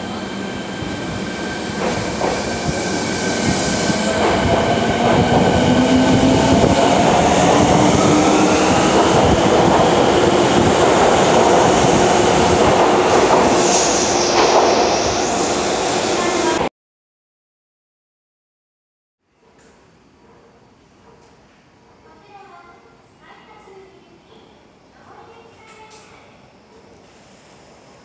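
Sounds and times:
train wheel-on-rail rumble: 0:00.0 - 0:16.6.

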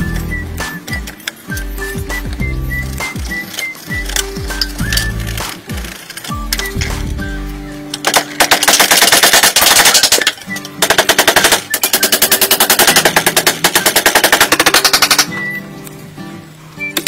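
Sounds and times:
background music: 0:00.0 - 0:17.0.

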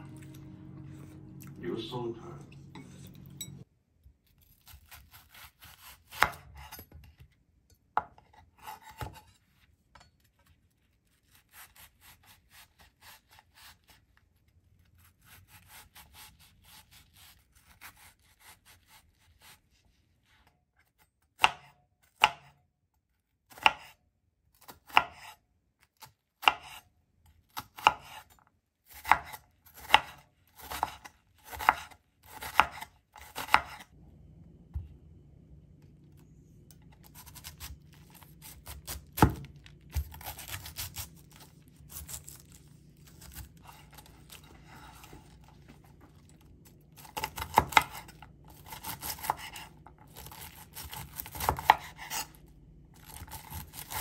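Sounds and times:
knife chopping onion on board: 0:04.6 - 0:07.3, 0:08.0 - 0:09.4, 0:21.3 - 0:22.6, 0:23.5 - 0:24.0, 0:24.6 - 0:25.4, 0:26.0 - 0:26.8, 0:27.6 - 0:28.3, 0:28.9 - 0:33.9, 0:37.1 - 0:45.2, 0:47.0 - 0:52.4, 0:53.0 - 0:54.0.

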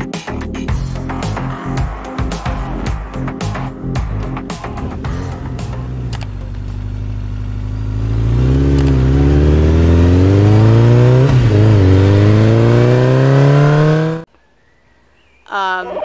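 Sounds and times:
motorcycle engine accelerating: 0:04.0 - 0:14.3.

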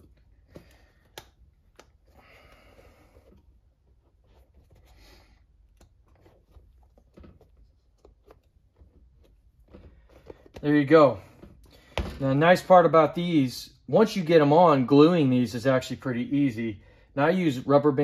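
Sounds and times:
rubber tire rubbing and squeezing: 0:00.0 - 0:11.7.

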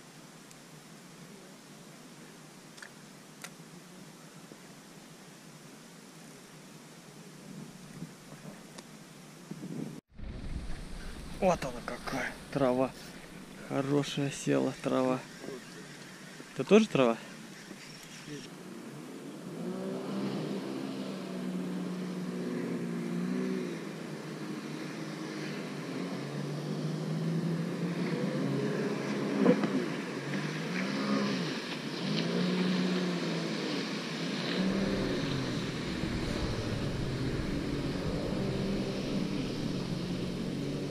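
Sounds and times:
boat outboard motor running: 0:10.1 - 0:14.0, 0:20.2 - 0:40.9.

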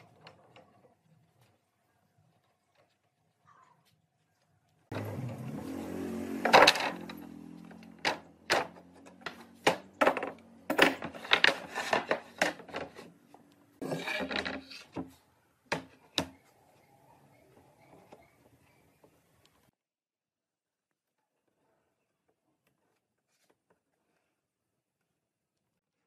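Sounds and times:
wooden knocks and clacks: 0:06.5 - 0:13.1.

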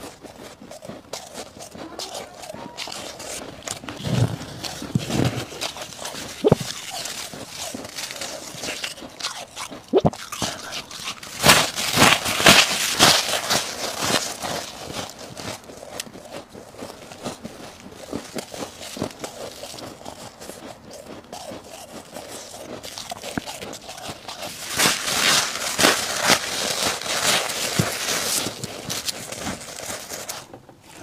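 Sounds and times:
crisp crunching of chewed ice: 0:00.0 - 0:31.0
frost ice scooped by hand: 0:01.4 - 0:09.2, 0:09.8 - 0:15.8, 0:21.6 - 0:31.0.

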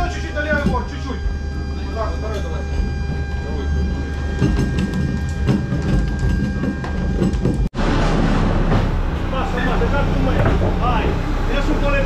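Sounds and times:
steady low hum: 0:00.0 - 0:12.0
steady rumble: 0:00.0 - 0:12.0.

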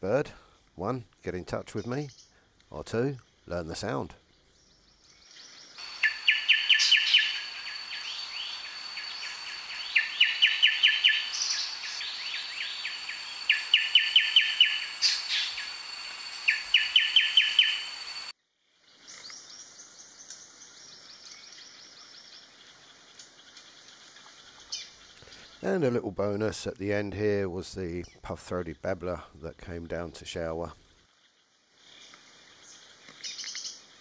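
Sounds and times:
soft high bird calls: 0:04.3 - 0:18.3, 0:31.9 - 0:33.9
bird singing rapid notes: 0:04.4 - 0:18.3
steady high whine: 0:11.6 - 0:18.3.

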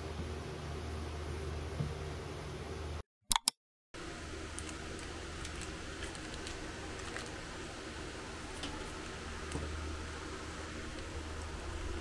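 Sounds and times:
low hum and hiss: 0:04.0 - 0:12.0.

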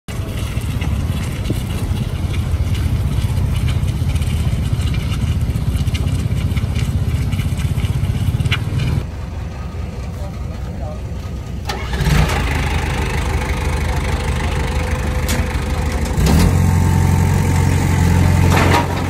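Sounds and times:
diesel machine rumbling: 0:00.1 - 0:19.0
metallic clanks: 0:18.3 - 0:19.0.

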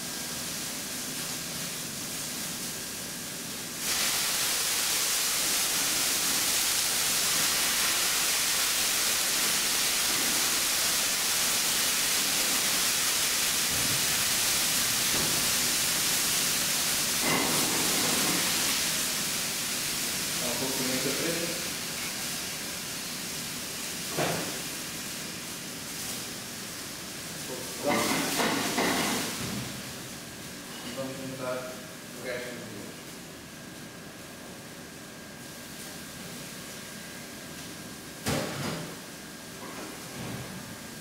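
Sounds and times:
mushrooms sizzling in a pan: 0:00.0 - 0:30.6
loud hiss of wine in hot pan: 0:00.0 - 0:33.2.

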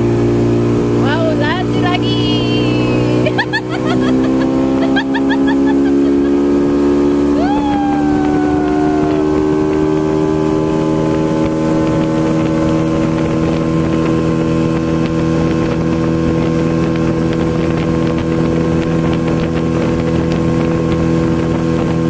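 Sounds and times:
jet ski engine running: 0:00.0 - 0:22.0
rush of water and wind: 0:00.0 - 0:22.0
person shouting: 0:07.4 - 0:09.5.

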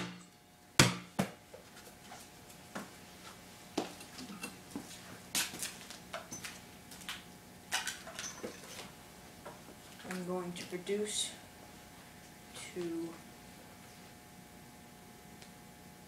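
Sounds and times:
basketball bouncing on concrete: 0:00.8 - 0:01.4.

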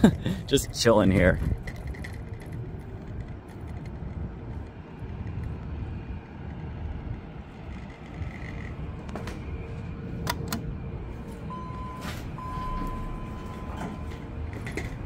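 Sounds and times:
elevator low rumble and hum: 0:00.0 - 0:15.0
steady high beep: 0:11.5 - 0:14.2.

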